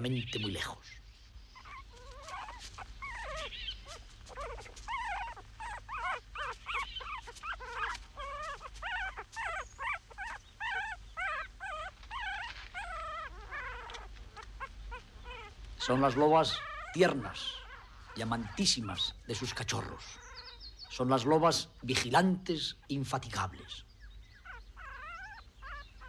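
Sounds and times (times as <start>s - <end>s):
wolf pups whimpering: 1.6s - 22.0s, 23.4s - 26.0s.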